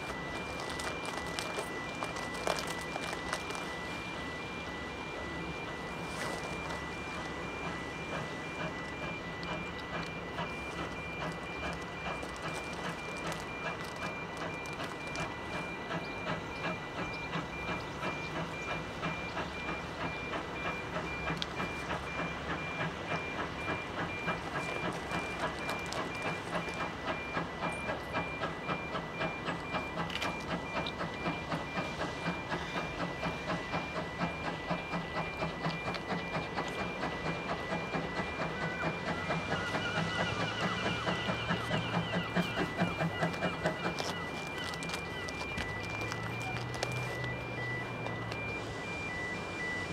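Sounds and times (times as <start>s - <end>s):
continuous high beeping tone: 0.0s - 49.9s
steam locomotive chuffing: 0.0s - 49.9s.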